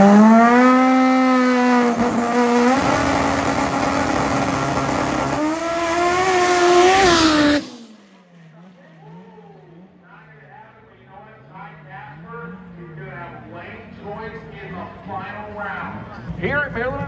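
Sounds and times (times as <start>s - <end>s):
drag racing car engine revving: 0.0s - 9.0s.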